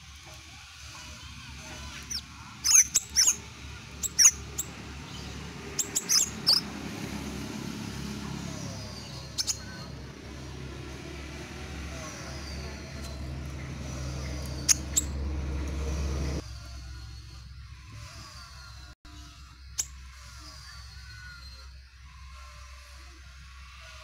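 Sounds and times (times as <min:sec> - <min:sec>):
songbird chirping: 0:08.1 - 0:17.7.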